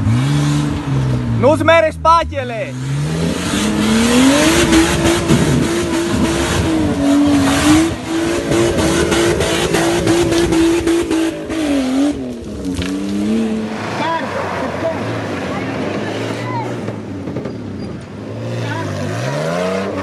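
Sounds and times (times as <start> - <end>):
engine revving hard: 0.0 - 1.1, 2.7 - 12.4, 18.2 - 20.0.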